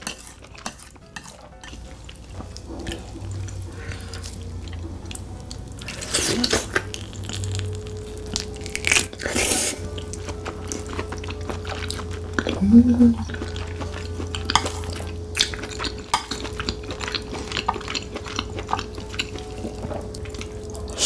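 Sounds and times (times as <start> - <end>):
wet eating and chewing: 0.0 - 21.0.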